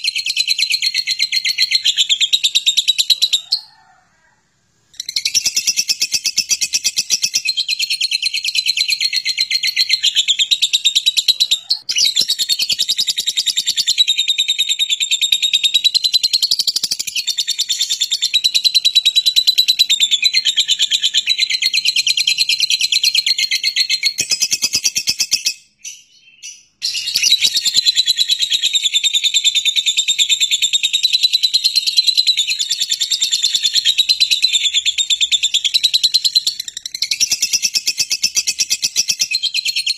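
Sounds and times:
bird chattering trill: 0:05.0 - 0:29.0.

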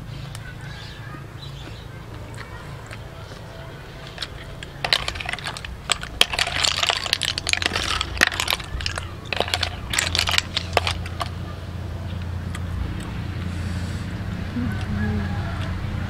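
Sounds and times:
snail shells clattering on metal tray: 0:04.0 - 0:11.5.

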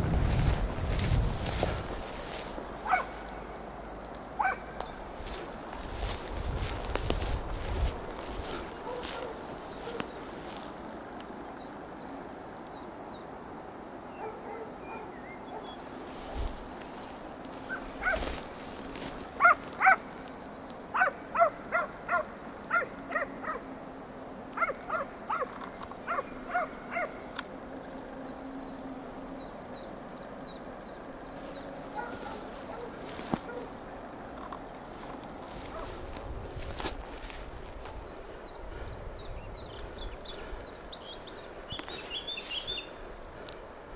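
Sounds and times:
hound barking in sharp yelps: 0:02.8 - 0:03.2, 0:04.4 - 0:04.7, 0:08.8 - 0:10.0, 0:14.2 - 0:15.8, 0:17.7 - 0:18.3, 0:19.4 - 0:20.0, 0:20.9 - 0:23.7, 0:24.6 - 0:27.2, 0:32.0 - 0:33.7.

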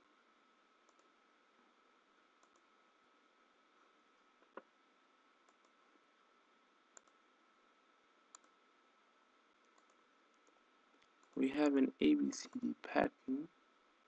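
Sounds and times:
computer mouse clicks: 0:00.8 - 0:01.1, 0:02.4 - 0:02.7, 0:05.4 - 0:05.8, 0:06.9 - 0:07.2, 0:08.3 - 0:08.6, 0:09.6 - 0:11.4.

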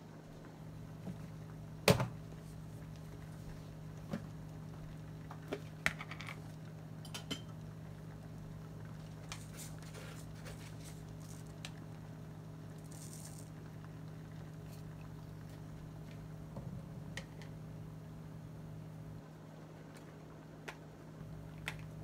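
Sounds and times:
steady low hum: 0:00.0 - 0:22.0
clinks of kitchen pots and utensils: 0:07.0 - 0:07.6.

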